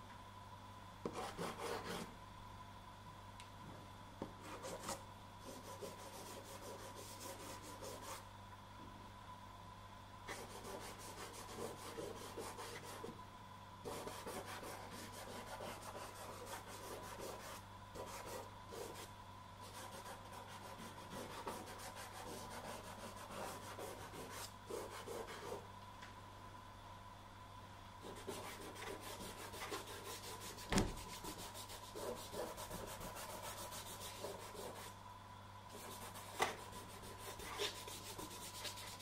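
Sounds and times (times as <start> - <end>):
faint electrical hum: 0.0 - 39.0
pastel scratching on paper: 4.5 - 8.2, 10.3 - 13.1, 13.9 - 19.1, 19.7 - 25.6, 28.1 - 34.9, 35.7 - 39.0.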